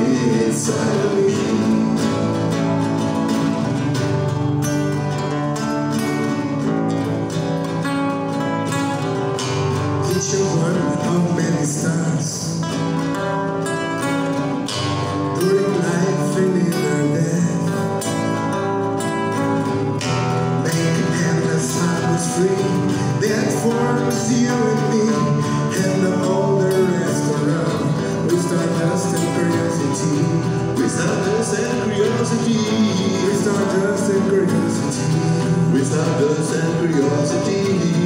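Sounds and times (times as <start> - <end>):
man singing: 0.0 - 3.9, 10.0 - 13.0, 15.3 - 18.5, 20.3 - 38.0
acoustic guitars strumming: 0.0 - 38.0.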